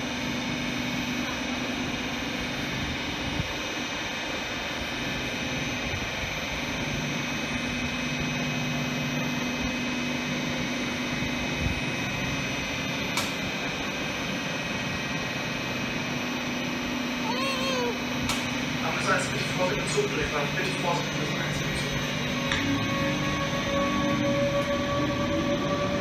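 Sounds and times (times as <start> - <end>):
electric train humming and whining: 0.0 - 26.0
sharp click: 13.2 - 13.4.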